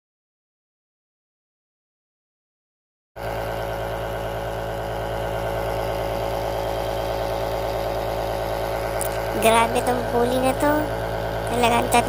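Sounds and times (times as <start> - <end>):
steady machine hum: 3.2 - 12.0.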